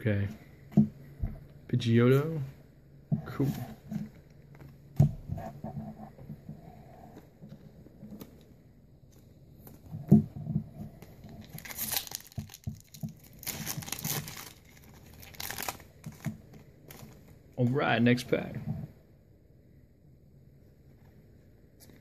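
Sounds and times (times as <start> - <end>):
foil wrapper tearing and crinkling: 11.4 - 17.2.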